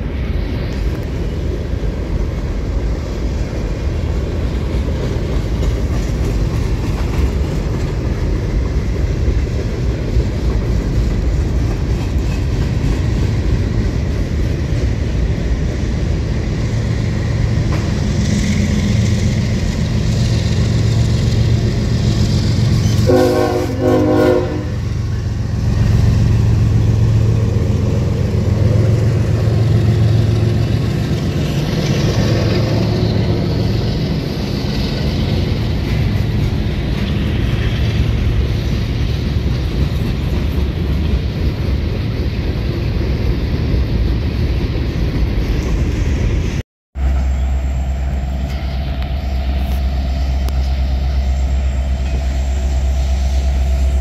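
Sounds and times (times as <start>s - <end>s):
freight train rumbling on rails: 0.0s - 54.0s
diesel engine drone: 14.2s - 38.7s, 47.0s - 54.0s
train horn blast: 22.8s - 25.2s.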